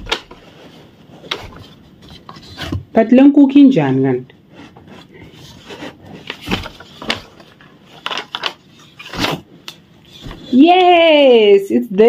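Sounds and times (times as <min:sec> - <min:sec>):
basket rubbing: 0:04.5 - 0:10.8.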